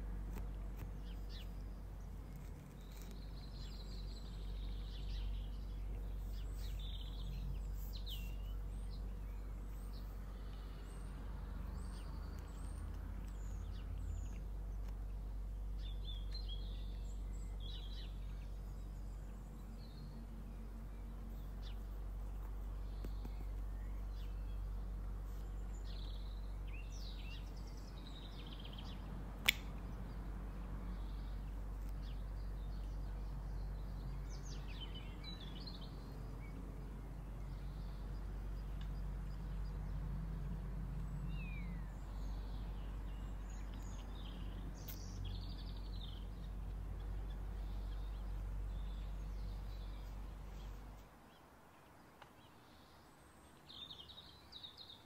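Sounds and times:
steady low hum: 0.0 - 51.4
small birds chirping: 0.0 - 55.0
sharp click: 29.4 - 29.8.

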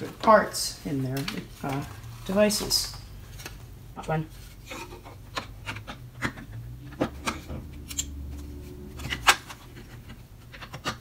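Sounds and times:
plastic parts clicking: 9.0 - 11.0.

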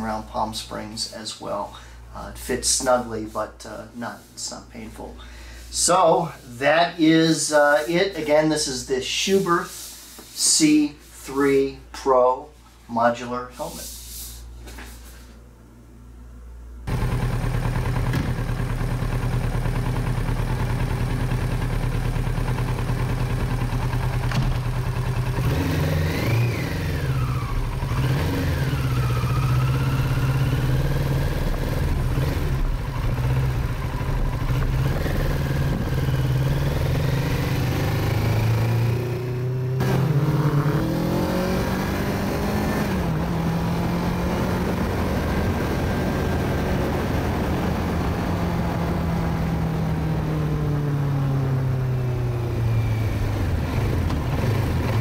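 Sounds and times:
motorcycle engine running: 16.9 - 55.0.

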